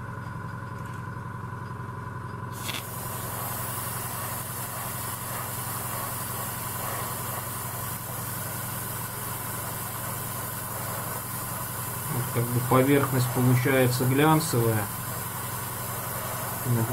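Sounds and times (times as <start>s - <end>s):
air compressor humming: 2.4s - 16.9s
airbrush spraying hiss: 2.5s - 16.9s.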